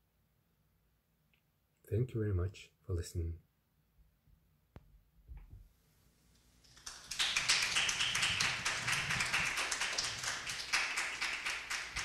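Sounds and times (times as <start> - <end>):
audience applauding: 6.7 - 12.0.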